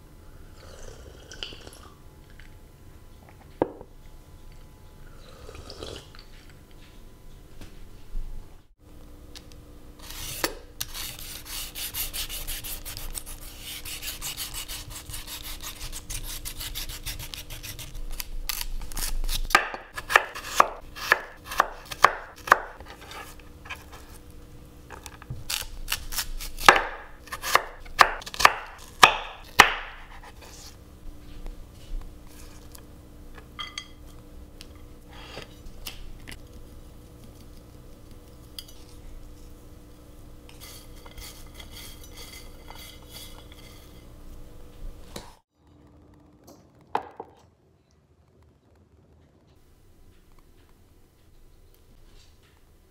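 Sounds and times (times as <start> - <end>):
peeler scraping radish skin: 10.0 - 24.2, 24.9 - 30.8
knife chopping on wooden board: 19.4 - 22.8, 26.5 - 30.3.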